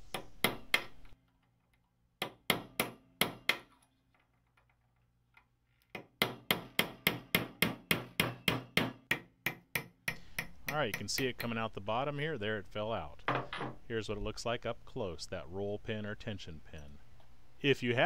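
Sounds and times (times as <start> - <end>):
hammer tapping metal punch: 5.9 - 11.6.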